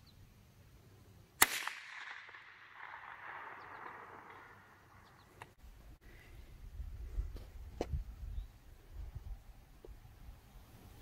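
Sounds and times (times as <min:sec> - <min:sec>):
rifle shot with echo: 0:01.4 - 0:05.0.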